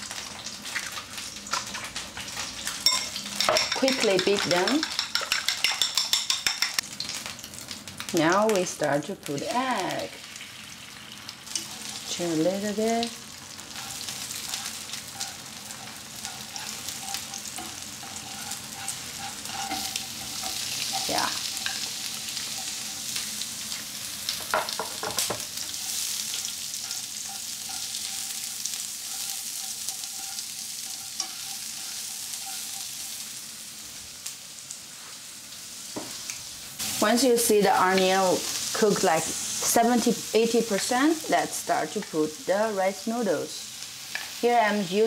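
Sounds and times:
egg and onion sizzling in oil: 0.0 - 45.0
chopsticks scraping and tapping pan: 2.8 - 6.8, 13.7 - 23.2, 24.4 - 28.4, 29.0 - 32.9.

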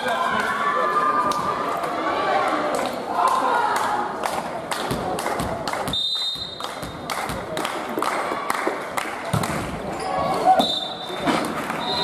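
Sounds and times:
ball bouncing on hall floor: 4.8 - 7.6
referee's whistle: 5.9 - 6.6, 10.6 - 11.2, 11.8 - 12.0.

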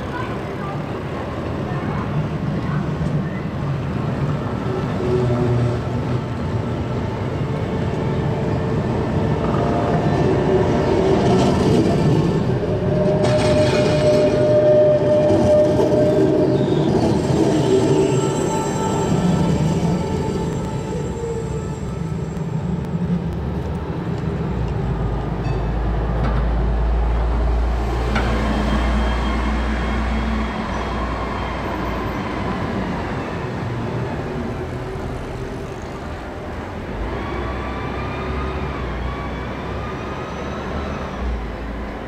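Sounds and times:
bus low rumble: 0.0 - 42.0
tram high gliding tone: 0.0 - 42.0.

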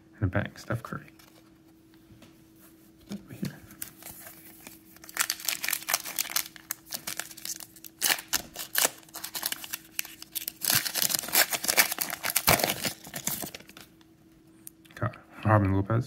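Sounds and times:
plastic wrapper tearing and crinkling: 3.8 - 13.9.

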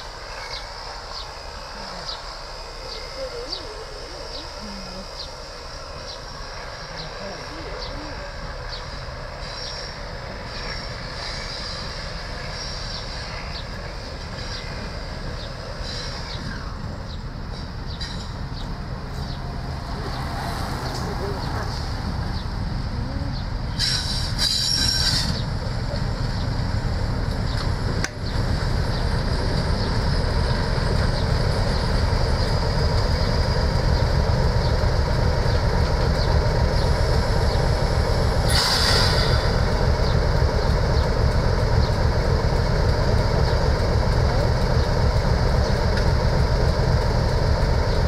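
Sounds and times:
diesel locomotive engine rumble: 0.0 - 48.0
metallic train squeals: 8.7 - 18.6, 23.7 - 25.7, 28.3 - 48.0.

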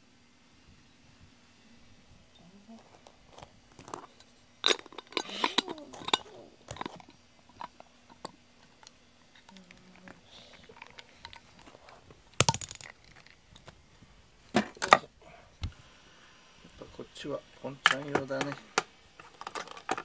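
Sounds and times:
jar lid clicking and scraping: 3.8 - 9.6.

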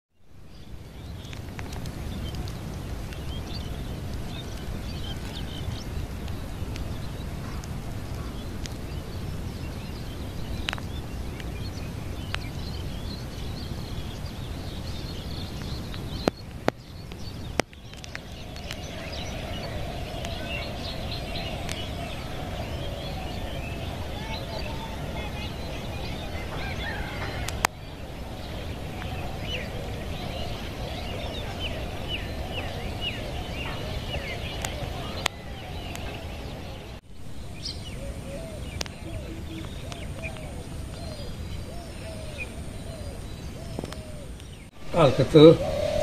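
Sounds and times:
small birds chirping: 0.1 - 46.0
low rumble: 17.8 - 39.1.

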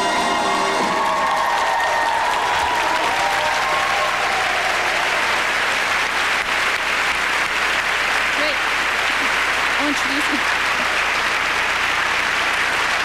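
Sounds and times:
music: 0.0 - 1.2
audience applauding: 0.0 - 13.0.

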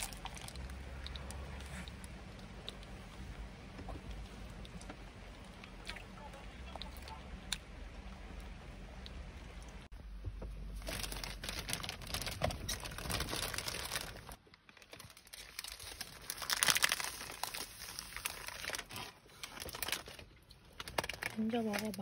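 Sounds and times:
plastic wrapper crinkling: 0.0 - 1.3, 10.7 - 22.0.

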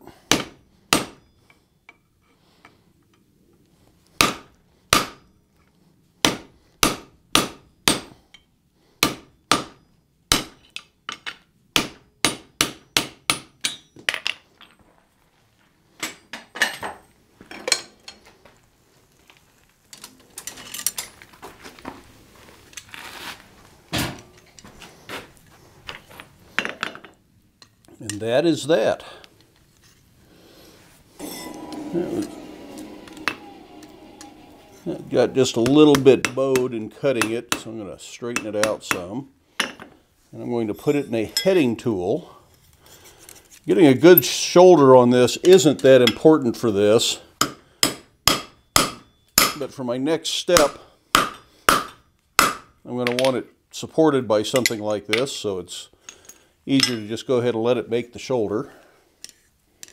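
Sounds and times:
hammer striking steel on anvil: 0.3 - 1.4, 4.2 - 5.3, 6.2 - 8.1, 31.2 - 37.6, 47.4 - 49.6, 50.6 - 52.7
metal clinks and scrapes: 19.9 - 21.3, 31.2 - 35.7, 40.7 - 41.6.

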